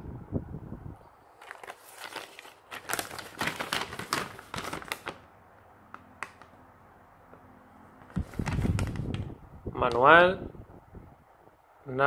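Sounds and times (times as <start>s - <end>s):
paper crinkling and rustling: 1.3s - 5.3s, 5.9s - 6.6s, 8.0s - 9.3s.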